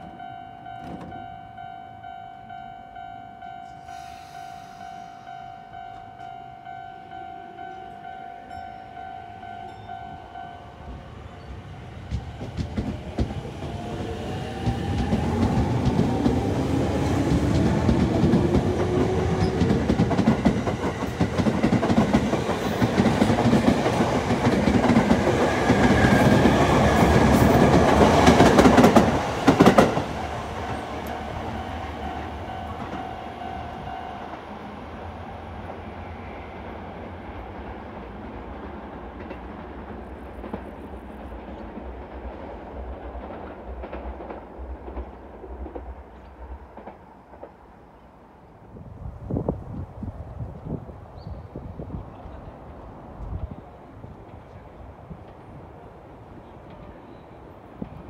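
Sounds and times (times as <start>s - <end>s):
train wheels clacking over rail joints: 12.0s - 33.6s, 37.9s - 47.6s.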